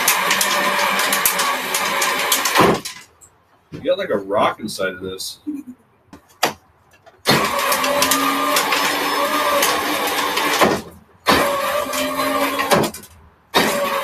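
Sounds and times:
electric motor whining: 0:07.3 - 0:10.7.

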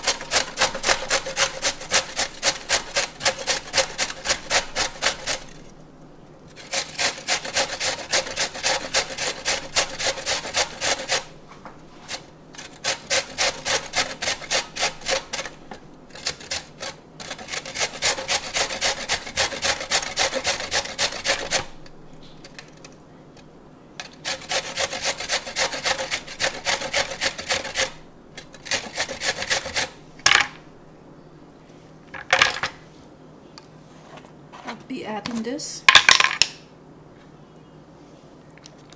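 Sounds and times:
carrot grating on metal grater: 0:00.0 - 0:05.7, 0:06.5 - 0:11.4, 0:12.0 - 0:22.8, 0:24.0 - 0:30.0.

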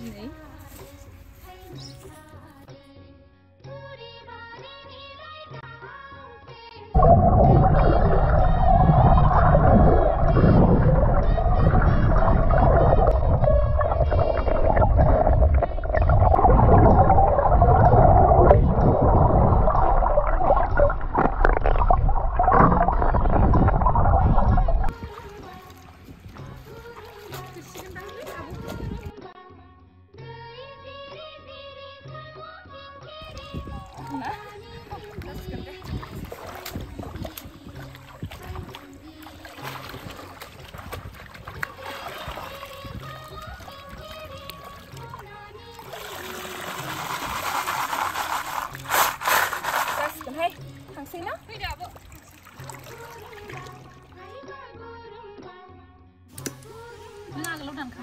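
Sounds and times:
soft background music: 0:00.0 - 0:58.0
muffled underwater water gurgling: 0:07.0 - 0:25.0
baskets splashing in river water: 0:07.0 - 0:29.1, 0:33.3 - 0:54.2
stones knocking underwater: 0:07.0 - 0:29.1, 0:33.3 - 0:45.3.

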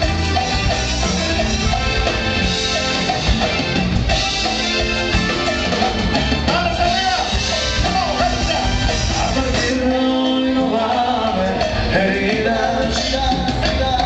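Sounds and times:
live band playing loudly: 0:00.0 - 0:14.0
steady drum beat: 0:00.0 - 0:14.0.

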